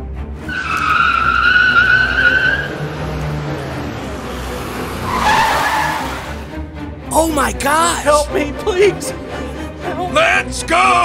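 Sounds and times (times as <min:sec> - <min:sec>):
background music: 0:00.0 - 0:11.0
tyres squealing in a skid: 0:00.5 - 0:03.0, 0:04.8 - 0:06.4.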